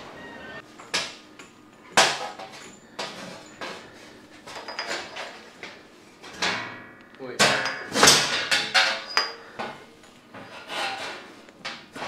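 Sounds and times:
metallic knocks and clanks: 6.2 - 12.0.

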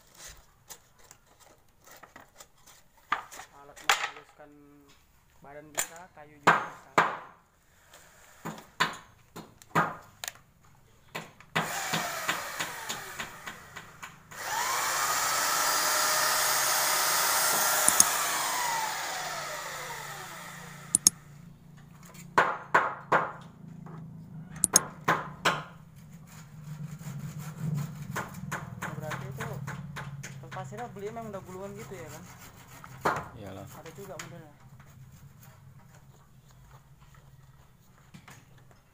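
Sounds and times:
belt sander motor whine: 14.4 - 21.2.

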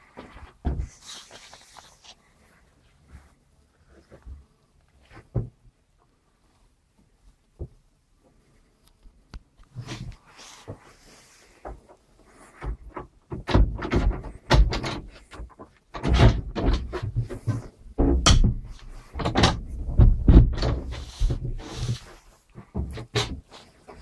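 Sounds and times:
wooden door knocks and thumps: 12.6 - 21.6.

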